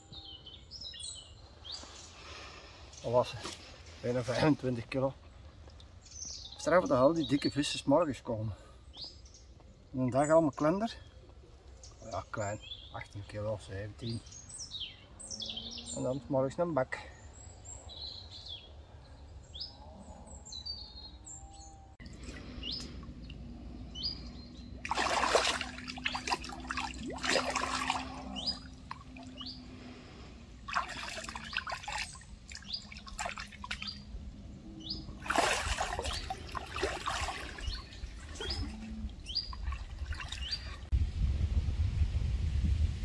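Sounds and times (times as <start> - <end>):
small birds chirping: 0.0 - 40.9
water splashing in shallows: 22.0 - 40.9.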